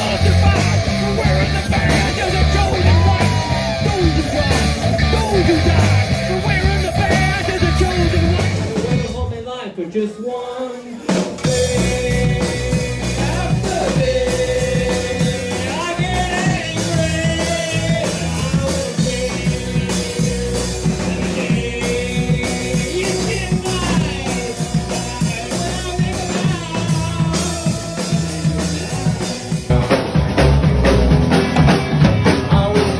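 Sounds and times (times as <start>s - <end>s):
rock band playing: 0.0s - 9.5s, 10.9s - 32.9s.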